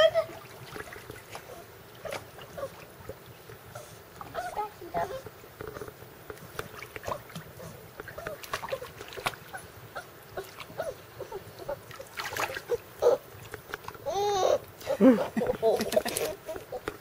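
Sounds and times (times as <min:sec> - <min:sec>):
puppy splashing in water: 0:00.0 - 0:14.0
puppy whining: 0:01.4 - 0:02.8, 0:08.1 - 0:11.8, 0:12.6 - 0:13.3.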